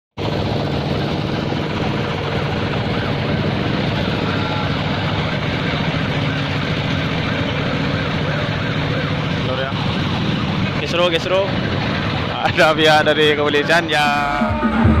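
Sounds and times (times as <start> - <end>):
heavy engine idling: 0.2 - 15.0
crowd voices: 3.7 - 15.0.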